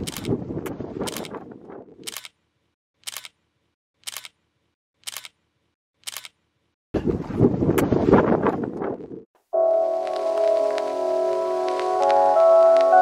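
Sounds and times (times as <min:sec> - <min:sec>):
camera shutter clicking: 0:00.0 - 0:00.4, 0:02.0 - 0:02.4, 0:03.0 - 0:03.4, 0:04.0 - 0:04.4, 0:05.0 - 0:05.4, 0:06.0 - 0:06.4
wind buffeting microphone: 0:00.0 - 0:02.1, 0:07.0 - 0:09.3.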